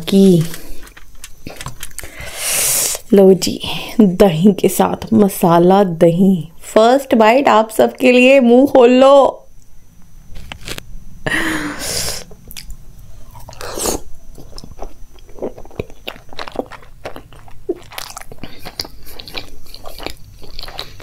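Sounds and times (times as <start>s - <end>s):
person biting food: 10.3s - 10.9s, 12.0s - 21.0s
chewing with mouth clicks: 12.5s - 21.0s.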